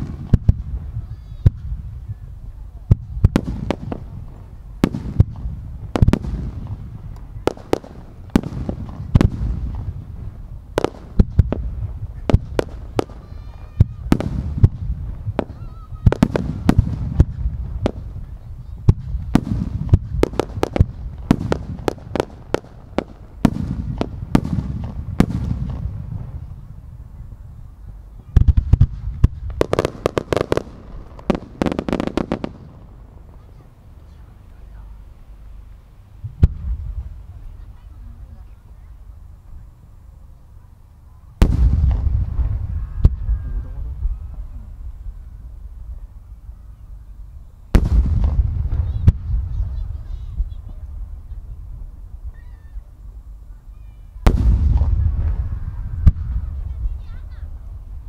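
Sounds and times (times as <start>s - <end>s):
rapid crackling bursts: 28.4s - 35.5s.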